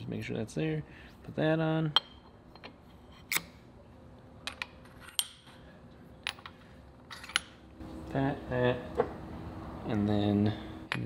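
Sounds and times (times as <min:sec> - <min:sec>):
metal parts clinking: 0:06.2 - 0:07.6.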